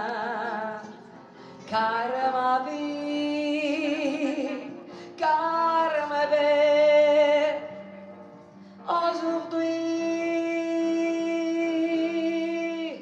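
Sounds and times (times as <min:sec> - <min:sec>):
acoustic guitar: 0:00.0 - 0:13.0
piano: 0:00.0 - 0:13.0
woman singing with vibrato: 0:01.7 - 0:07.6.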